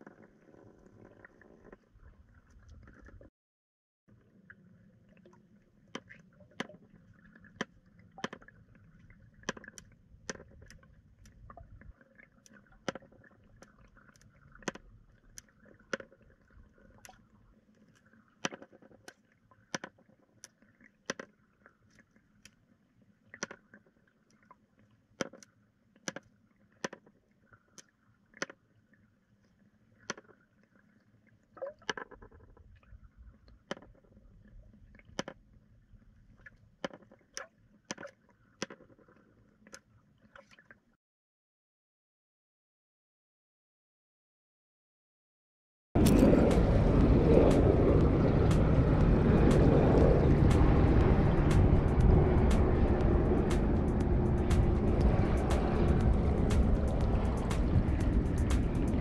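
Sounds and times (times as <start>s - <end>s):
faint low rumble: 8.7s - 12.3s, 46.0s - 59.0s.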